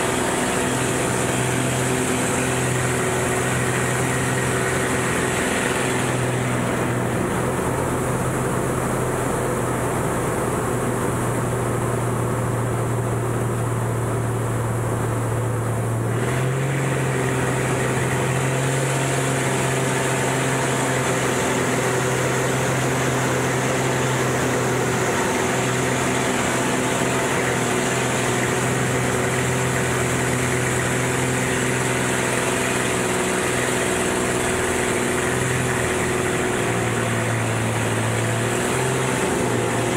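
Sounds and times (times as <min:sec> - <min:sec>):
plane engine and propeller droning: 0:00.0 - 0:39.9.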